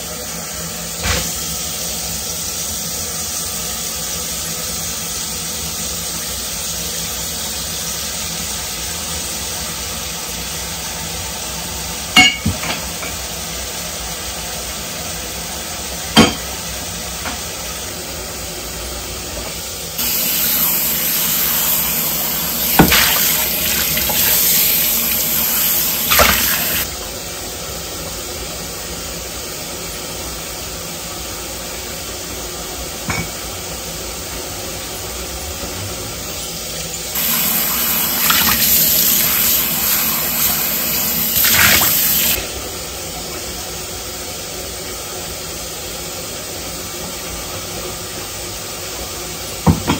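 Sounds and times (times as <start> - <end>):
dishes clinking: 12.2 - 12.8
tap running into sink: 20.0 - 26.9, 37.2 - 42.4.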